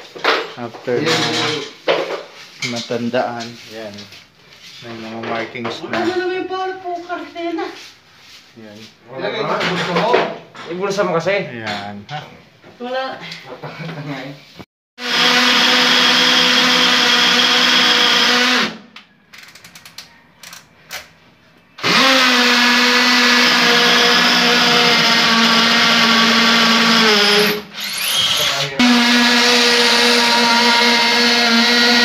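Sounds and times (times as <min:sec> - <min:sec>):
cordless drill whining: 0:15.0 - 0:18.8, 0:21.8 - 0:32.0.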